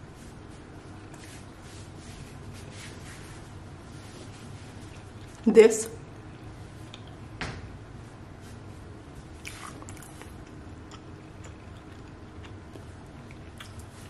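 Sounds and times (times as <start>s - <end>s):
soft rustle: 0.0s - 5.4s.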